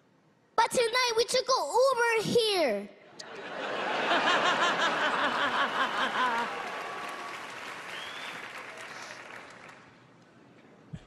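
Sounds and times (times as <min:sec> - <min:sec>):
audience laughing: 0:03.2 - 0:06.7
audience applauding: 0:04.4 - 0:10.1.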